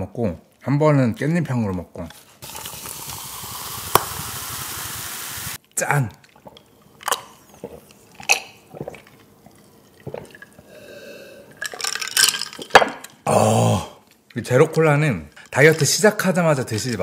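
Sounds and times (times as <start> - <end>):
person swallowing drink: 6.1 - 10.7.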